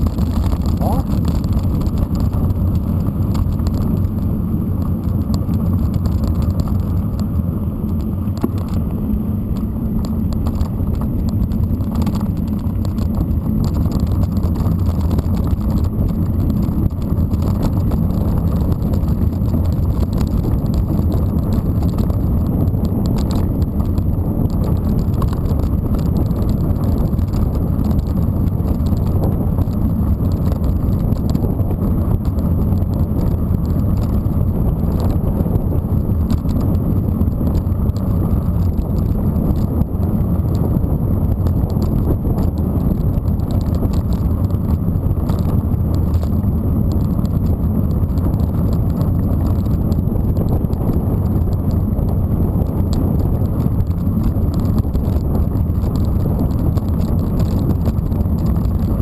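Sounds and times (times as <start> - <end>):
bike rattling and ticking: 0.0 - 59.0
bike tyres rumbling on gravel: 0.0 - 59.0.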